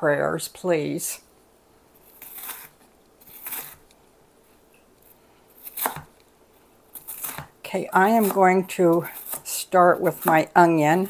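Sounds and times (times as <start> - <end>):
knife slicing onion on board: 2.1 - 3.9, 5.6 - 6.2, 6.9 - 11.0.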